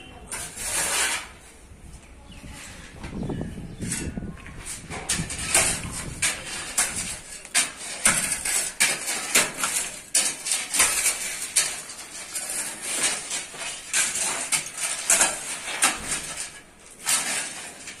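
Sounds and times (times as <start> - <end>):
hammer striking concrete: 5.0 - 11.9.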